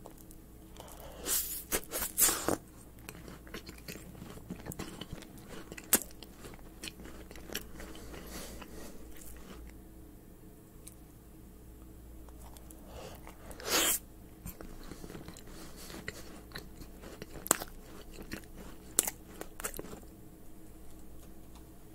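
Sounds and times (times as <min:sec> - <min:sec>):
biscuit shell crunching: 0:01.9 - 0:09.8, 0:14.4 - 0:20.2
close chewing with clicks: 0:02.5 - 0:09.8, 0:12.3 - 0:13.4, 0:14.4 - 0:21.9.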